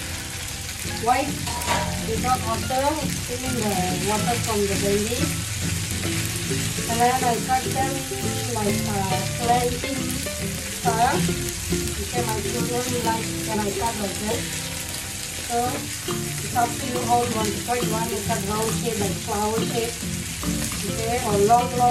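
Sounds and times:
okra sizzling in oil: 0.0s - 21.9s
spatula scraping a pan: 1.4s - 2.0s.

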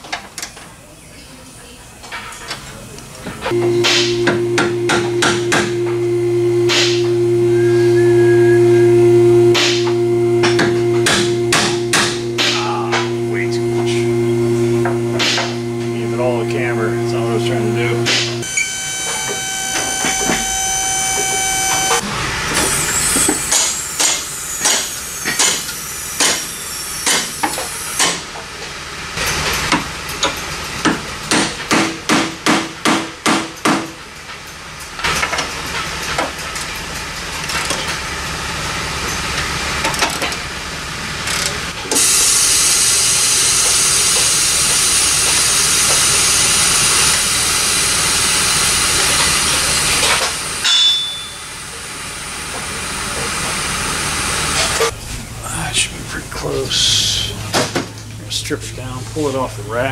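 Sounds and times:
loud steady hiss: 3.5s - 18.5s.

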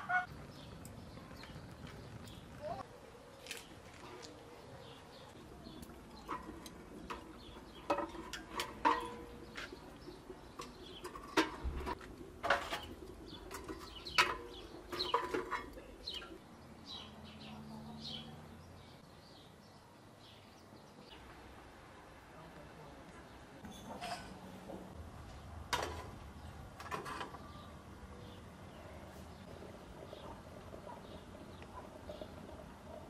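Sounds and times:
birds chirping: 0.0s - 21.6s, 26.2s - 33.0s
metal clinking and knocking: 6.2s - 9.5s, 10.5s - 16.3s.

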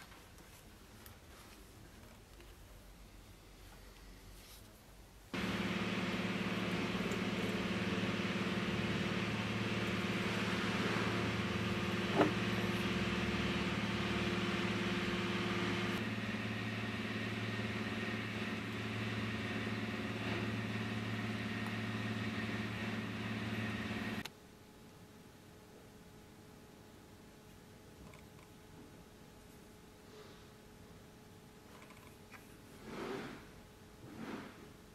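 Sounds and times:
steady mechanical hum: 0.0s - 34.9s.

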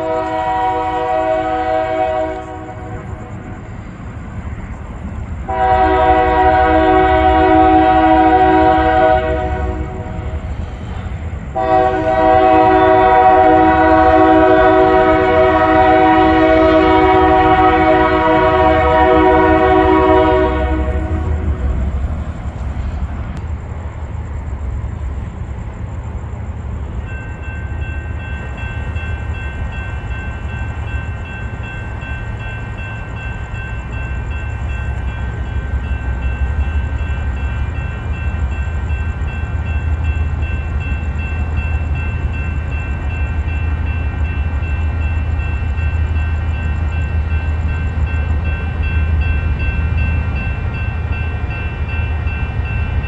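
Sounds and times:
diesel locomotive engine rumbling: 0.0s - 53.0s
locomotive bell ringing: 26.9s - 53.0s.

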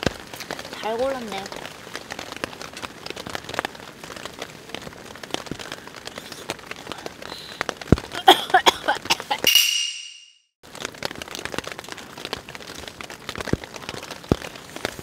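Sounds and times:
rain pattering on tent fabric: 0.0s - 9.5s, 10.6s - 15.0s
high ringing tone: 9.5s - 10.5s.

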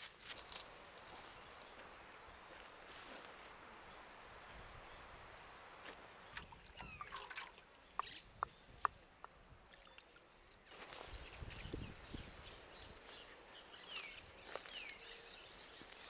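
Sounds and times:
faint outdoor ambience: 0.0s - 16.0s
water dripping: 5.8s - 10.3s
water sloshing in metal bucket: 6.4s - 7.6s.

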